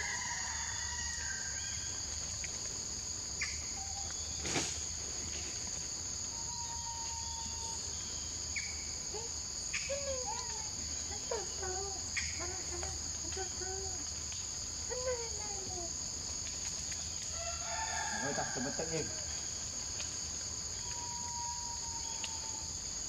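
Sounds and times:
wavering animal calls: 0:20.8 - 0:22.7.

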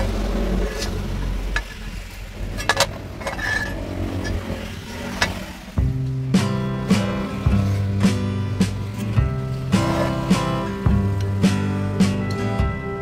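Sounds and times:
metal objects clinking: 0:00.6 - 0:05.4.

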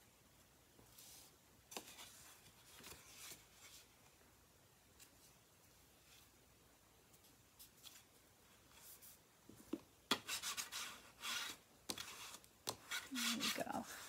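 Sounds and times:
faint paper rustling: 0:00.8 - 0:04.2, 0:07.0 - 0:14.0
bone folder scraping card: 0:10.1 - 0:13.6.

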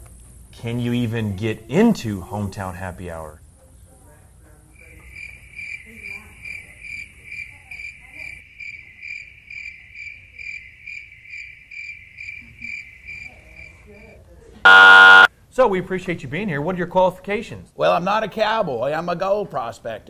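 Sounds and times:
cricket chirping: 0:05.1 - 0:13.7.

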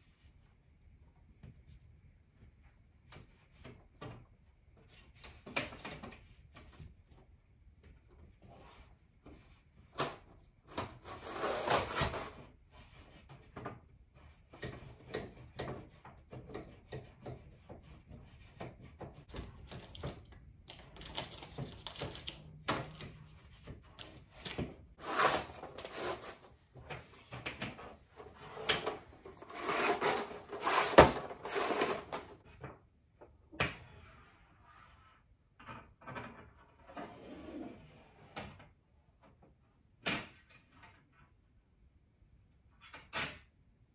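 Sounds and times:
fish tape scraping and rattling: 0:25.0 - 0:26.5, 0:28.2 - 0:32.4.

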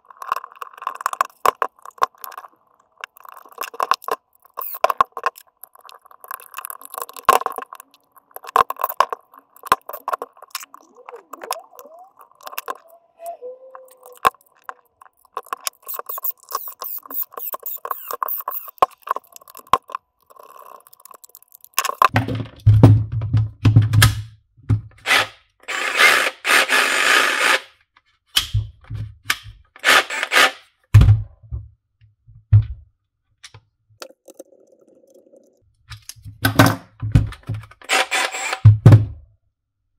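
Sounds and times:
knocks and scrapes of tool parts: 0:15.3 - 0:25.0, 0:35.9 - 0:39.2.

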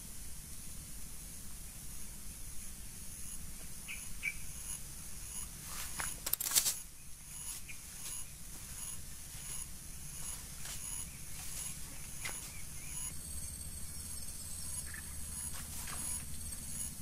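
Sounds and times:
insects chirping: 0:00.0 - 0:17.0
rustling and scraping in brush: 0:05.4 - 0:13.1, 0:15.4 - 0:16.7.

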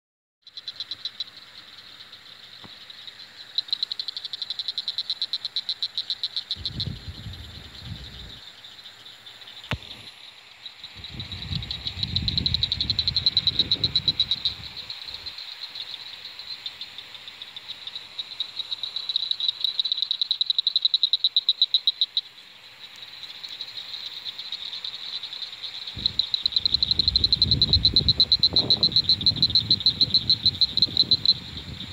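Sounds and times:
frogs trilling: 0:00.4 - 0:31.9
low rumble: 0:06.6 - 0:08.4.

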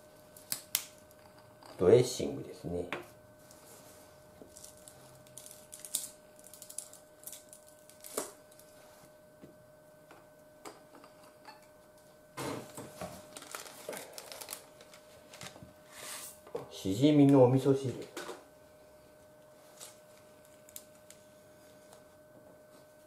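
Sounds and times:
plastic packet crinkling: 0:04.5 - 0:08.2, 0:13.2 - 0:15.6.

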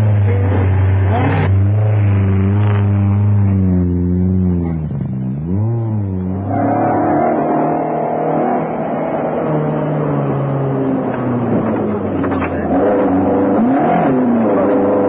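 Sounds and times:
higher steady engine note: 0:00.0 - 0:15.0
rally car engine accelerating: 0:00.0 - 0:15.0.

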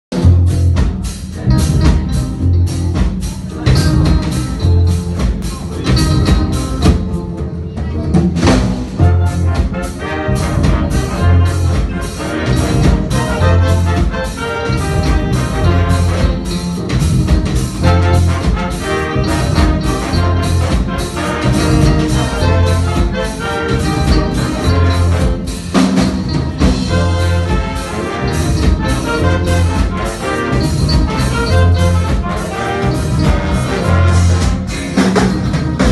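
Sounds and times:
steady drum beat: 0:00.1 - 0:35.9
horn section playing: 0:08.8 - 0:35.9
repeating bass line: 0:08.8 - 0:35.9.

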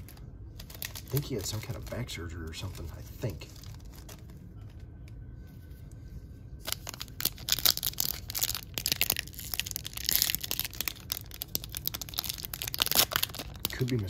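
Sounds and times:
foil wrapper tearing and crinkling: 0:00.0 - 0:04.4, 0:06.6 - 0:14.0.

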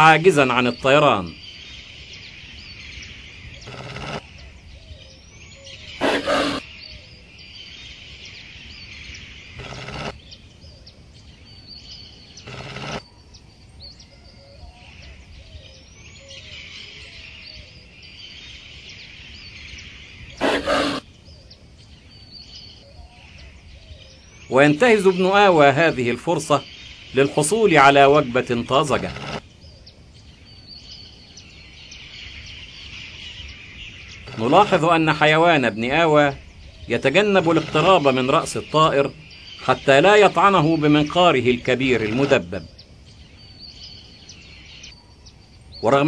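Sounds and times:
insects buzzing: 0:00.0 - 0:25.8
birds chirping: 0:00.0 - 0:46.0
harsh animal snarls: 0:06.0 - 0:06.6, 0:20.4 - 0:21.0.

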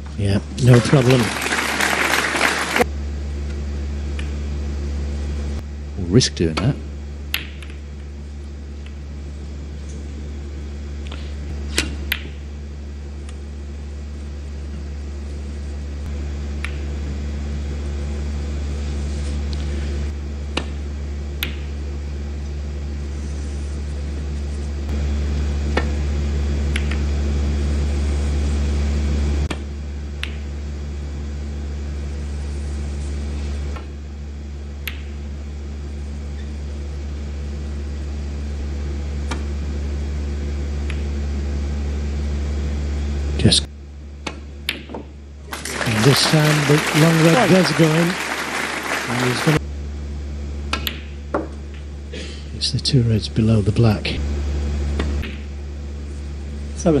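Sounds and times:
steady low hum: 0:00.0 - 0:57.0
snooker balls clicking: 0:21.4 - 0:21.7, 0:34.8 - 0:35.1, 0:50.7 - 0:51.9.

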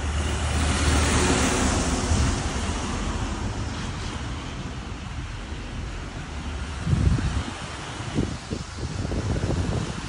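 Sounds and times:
vehicle tyre hiss passing: 0:00.0 - 0:10.0
wind rumble on microphone: 0:00.0 - 0:10.0.

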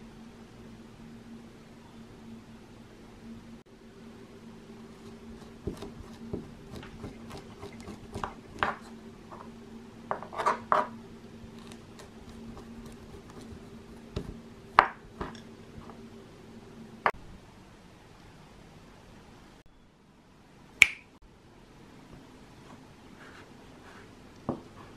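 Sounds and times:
spoon scraping orange peel: 0:04.7 - 0:09.0, 0:11.4 - 0:14.4.

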